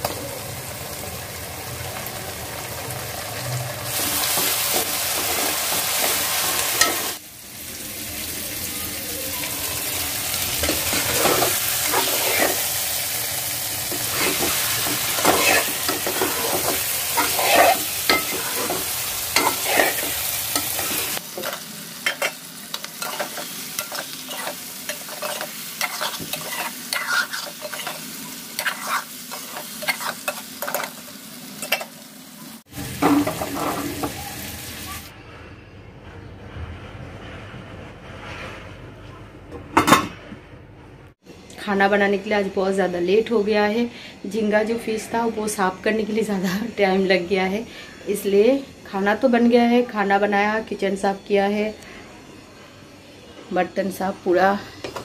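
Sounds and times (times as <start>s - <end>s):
food sizzling in a frying pan: 0.0s - 35.1s
spatula scraping a pan: 10.6s - 12.9s, 13.9s - 31.0s, 33.0s - 34.1s.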